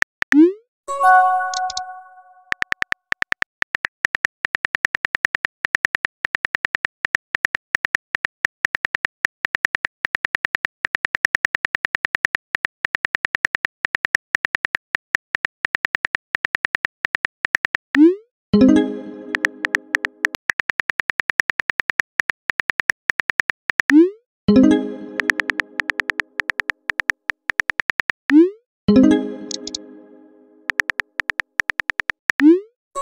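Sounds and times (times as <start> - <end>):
message chime: 0.9 - 2.5, 18.6 - 20.2, 24.5 - 26.3, 28.9 - 30.7
keyboard tapping clicks: 1.1 - 4.3, 19.2 - 24.0, 25.0 - 28.2, 29.4 - 29.8, 30.6 - 32.5.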